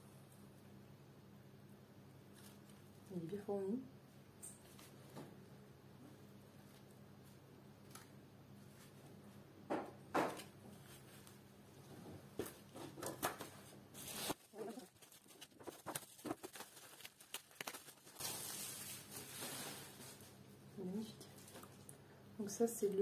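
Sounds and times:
paper and bubble wrap crinkling: 0:13.4 - 0:20.5.

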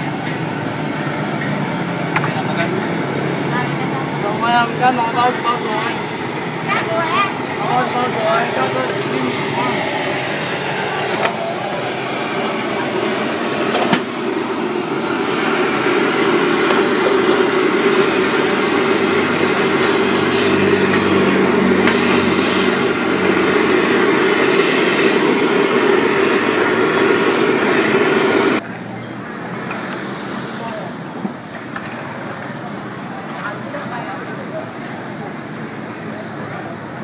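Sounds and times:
gas burners roaring: 0:00.0 - 0:37.0.

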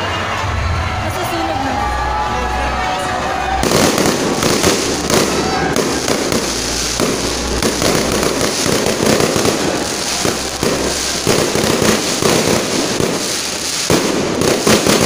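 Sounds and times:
fireworks bangs: 0:03.3 - 0:15.0
fireworks crackling: 0:03.3 - 0:15.0.

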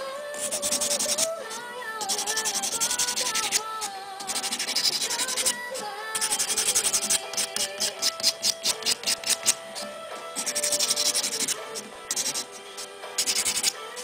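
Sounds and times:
background music: 0:00.0 - 0:14.0
grinding stone scraping: 0:02.0 - 0:05.6, 0:06.2 - 0:09.6, 0:10.4 - 0:13.8.

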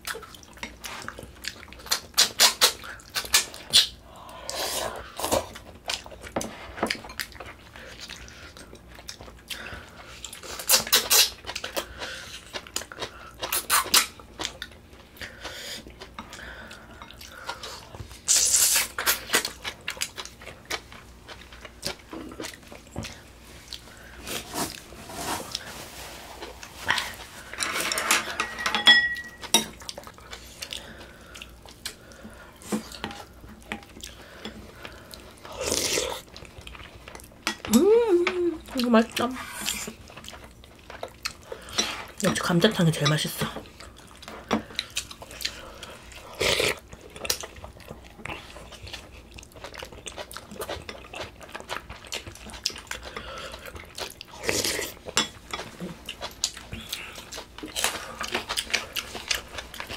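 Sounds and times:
chewing: 0:00.0 - 0:24.9, 0:29.2 - 0:37.7, 0:38.6 - 0:42.3, 0:43.4 - 0:59.9
utensils clinking against bowls: 0:27.5 - 0:29.8, 0:41.8 - 0:43.5.

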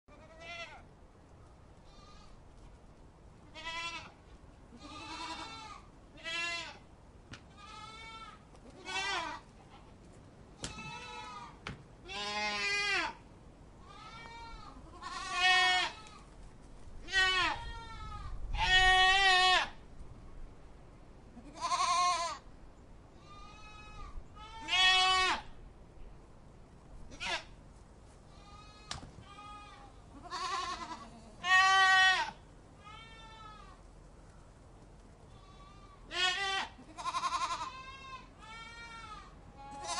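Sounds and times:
goat kids bleating: 0:00.1 - 0:00.8, 0:01.8 - 0:02.4, 0:03.4 - 0:06.9, 0:07.5 - 0:09.9, 0:10.6 - 0:13.2, 0:13.8 - 0:16.3, 0:17.0 - 0:19.8, 0:21.4 - 0:22.5, 0:23.2 - 0:25.6, 0:27.1 - 0:27.6, 0:28.3 - 0:33.9, 0:35.3 - 0:39.9.

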